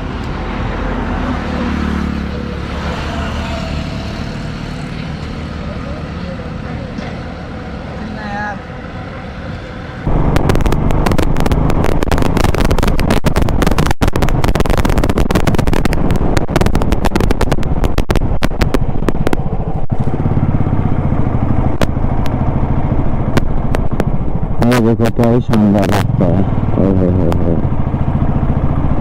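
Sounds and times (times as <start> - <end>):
traffic hum: 0.0 - 29.0
wind buffeting microphone: 10.0 - 24.7
motorcycle engine running: 10.0 - 29.0.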